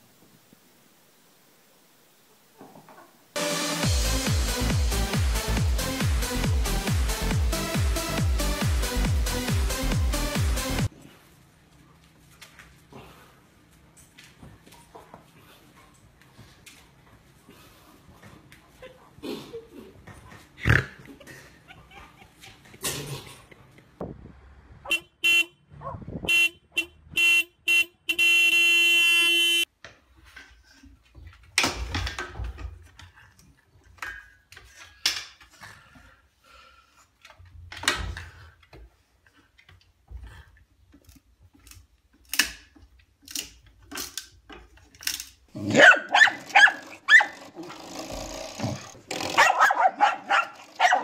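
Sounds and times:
car horn honking: 24.8 - 29.7.

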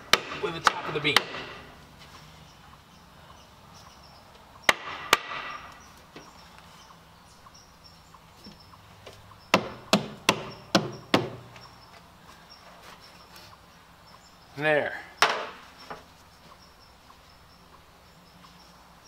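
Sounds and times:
hammer striking wood: 0.0 - 1.7, 4.7 - 5.7, 9.5 - 11.5, 15.2 - 15.6.

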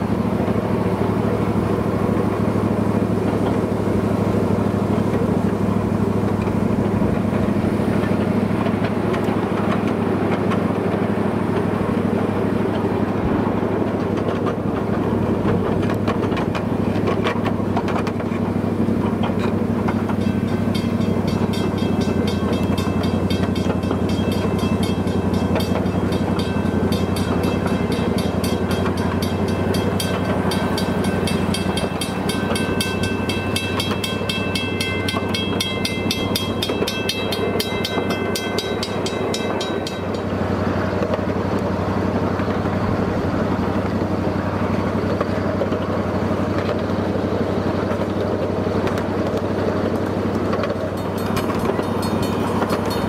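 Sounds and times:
miniature train drone: 0.0 - 53.0
bell ringing rapidly: 20.1 - 40.4, 51.0 - 53.0.

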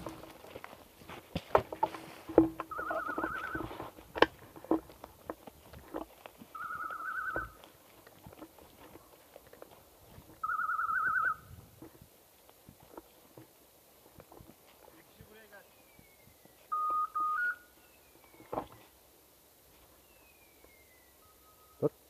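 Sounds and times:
brush rustling underfoot: 0.0 - 20.8
beeper collar warbling tone: 2.7 - 3.8.

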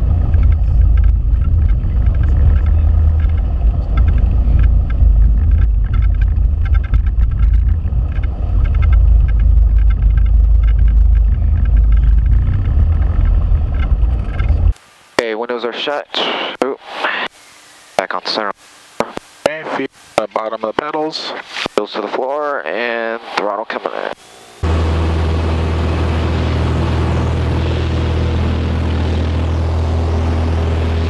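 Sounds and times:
aircraft engine and propeller drone: 0.0 - 14.8, 23.9 - 31.0.

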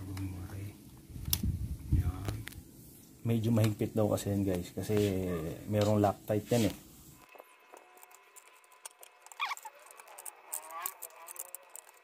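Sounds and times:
clicks of plastic connectors: 8.6 - 12.0
brief squeak: 9.3 - 9.8.

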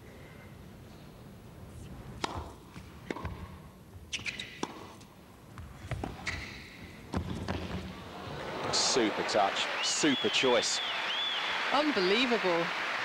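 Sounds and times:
racquets hitting tennis ball: 2.2 - 8.0
tennis ball bouncing: 2.2 - 8.0.

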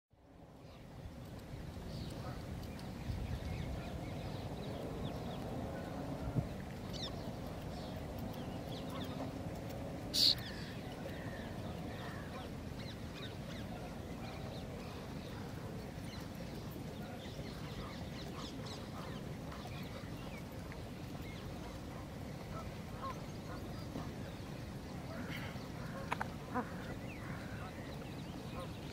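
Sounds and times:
wind buffeting microphone: 0.4 - 28.9
faint bird calls: 10.1 - 20.5, 21.1 - 28.9
sharp high-pitched bird call: 10.2 - 10.4.

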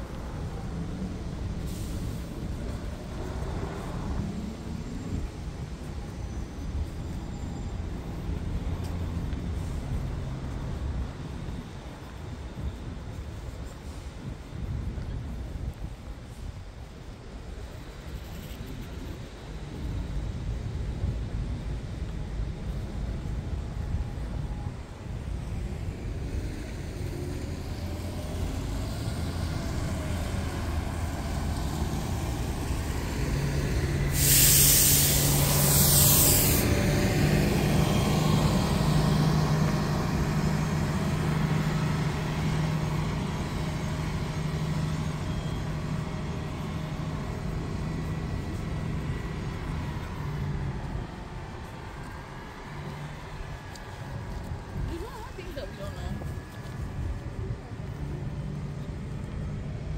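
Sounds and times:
bus engine humming: 0.0 - 59.9
air brakes hissing: 1.5 - 3.1, 33.8 - 37.4.

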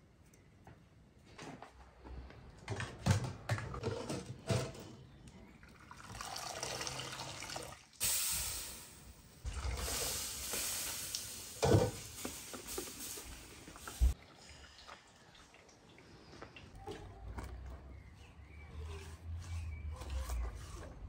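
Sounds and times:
water pouring and dripping: 5.3 - 17.5.

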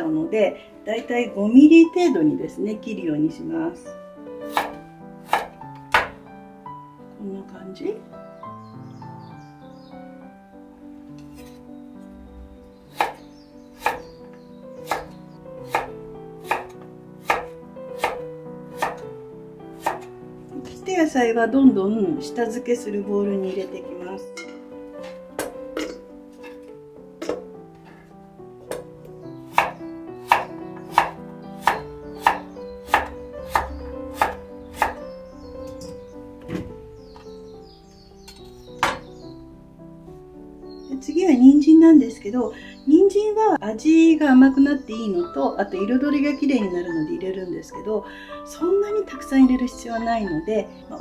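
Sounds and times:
soft background music: 0.0 - 51.0
knife cutting on wooden board: 4.5 - 6.2, 13.0 - 13.2, 13.8 - 14.1, 14.8 - 15.9, 16.5 - 18.2, 18.8 - 19.0, 19.8 - 20.1, 29.5 - 35.0.

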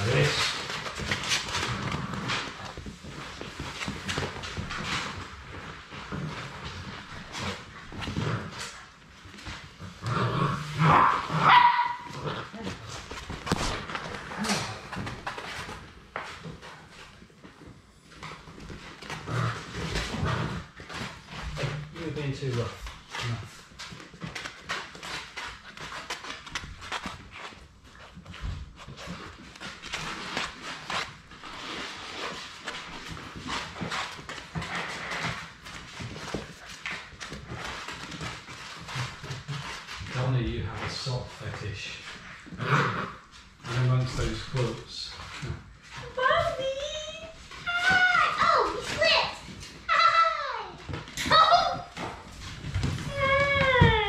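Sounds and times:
puppy claws clicking on wood floor: 22.5 - 31.7.

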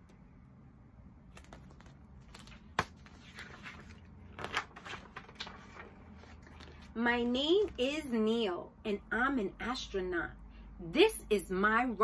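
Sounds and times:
book pages turning: 1.3 - 7.8.

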